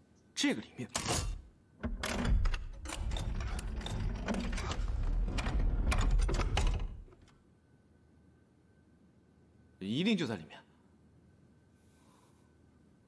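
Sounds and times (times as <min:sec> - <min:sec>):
floor mechanism grinding: 0:01.2 - 0:07.3.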